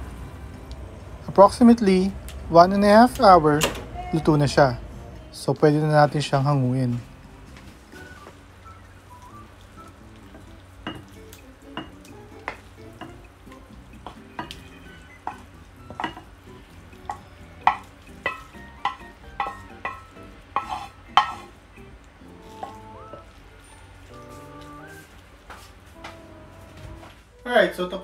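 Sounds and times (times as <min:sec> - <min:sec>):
utensil knocking against pan and bowl: 0:14.0 - 0:14.6, 0:15.2 - 0:16.3, 0:17.0 - 0:21.5
spatula scraping food from pan: 0:20.6 - 0:21.6.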